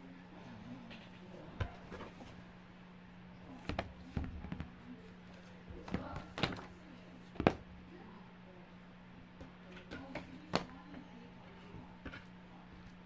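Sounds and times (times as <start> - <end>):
cardboard book knocking: 7.4 - 7.7.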